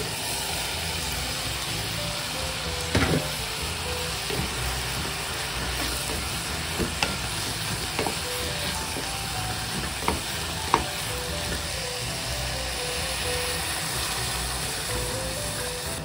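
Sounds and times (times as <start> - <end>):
food sizzling in metal pot: 0.0 - 16.0
wooden spoon knocking on pot: 4.2 - 11.6.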